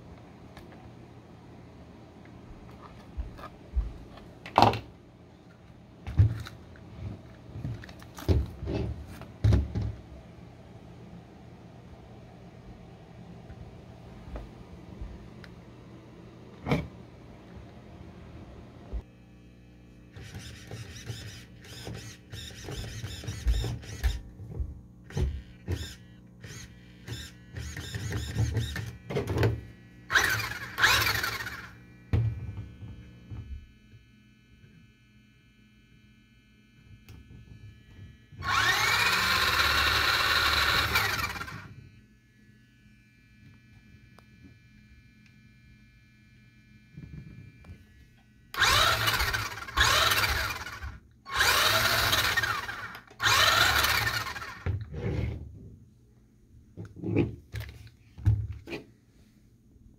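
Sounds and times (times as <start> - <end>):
toy truck electric motor whine: 20.1 - 24.3, 25.0 - 42.0, 42.9 - 55.3.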